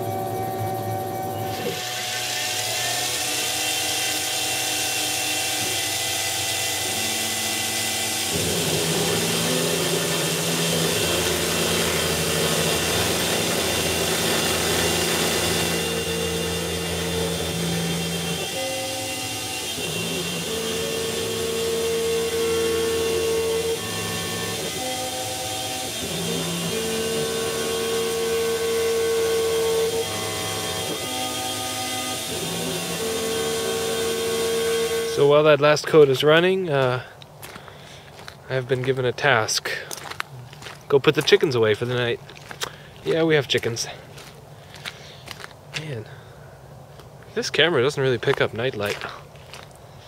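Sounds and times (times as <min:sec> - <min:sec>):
milling machine cutting steel: 0:00.0 - 0:36.9.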